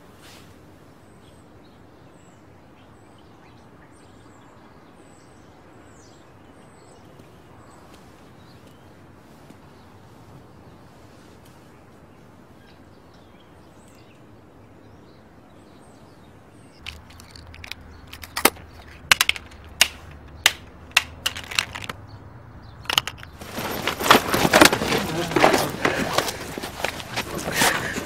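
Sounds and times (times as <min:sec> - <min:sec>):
scuffling and shuffling feet: 0:16.8 - 0:22.0, 0:22.9 - 0:28.0
footsteps on concrete stairs: 0:22.9 - 0:28.0.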